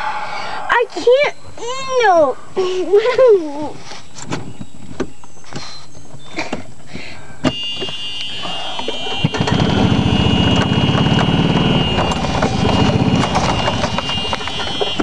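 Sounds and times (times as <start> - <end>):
reverse warning buzzer: 7.5 - 15.0
golf cart drive running: 7.9 - 15.0.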